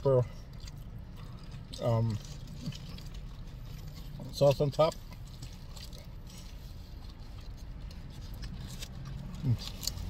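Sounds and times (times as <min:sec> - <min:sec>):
chewing: 0:00.0 - 0:10.0.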